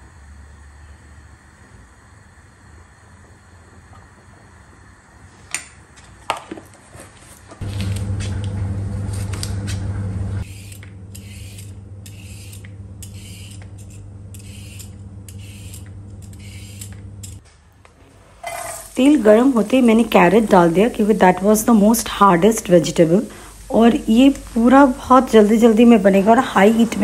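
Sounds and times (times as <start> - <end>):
steady low hum: 0.0 - 6.0, 7.3 - 17.4, 18.1 - 27.0
peeler scraping carrot: 10.5 - 17.4.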